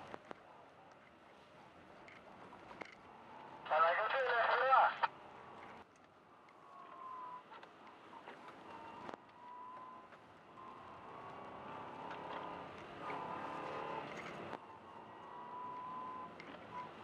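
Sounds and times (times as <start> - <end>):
car engine under load: 5.3 - 17.0.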